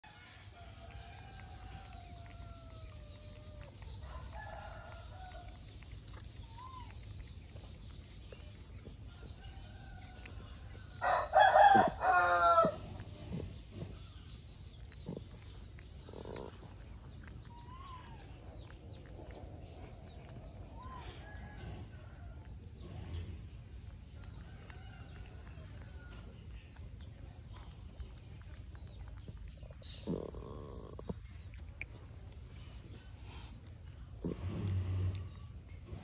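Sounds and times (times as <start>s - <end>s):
rooster crowing: 11.0s - 12.8s.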